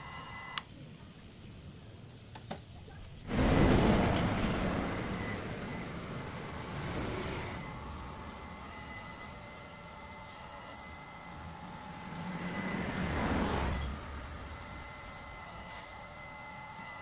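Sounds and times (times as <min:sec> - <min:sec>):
loud noisy hydraulic rush: 0:03.3 - 0:09.4, 0:11.6 - 0:15.4
thin high whine: 0:03.3 - 0:17.0.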